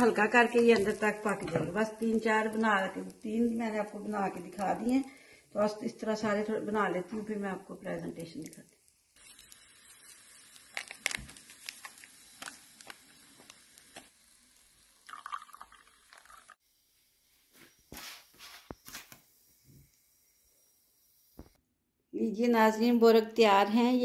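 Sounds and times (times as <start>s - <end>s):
hot water pouring into mug: 9.2s - 16.6s.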